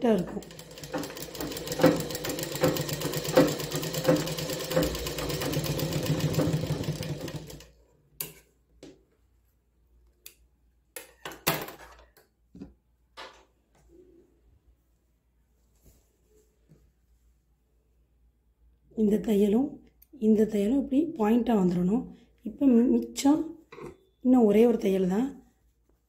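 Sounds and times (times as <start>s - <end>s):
sewing machine stitching: 0.0s - 7.8s.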